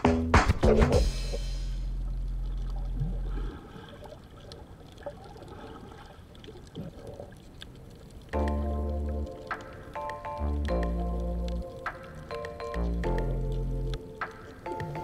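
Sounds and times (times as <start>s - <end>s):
underwater water sound: 0.7s - 15.0s
small clicks and bubbly ticks: 2.0s - 15.0s.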